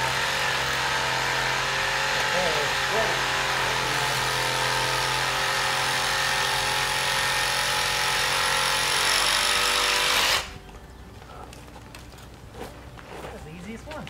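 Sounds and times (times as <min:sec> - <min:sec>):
power saw cutting: 0:00.0 - 0:10.6.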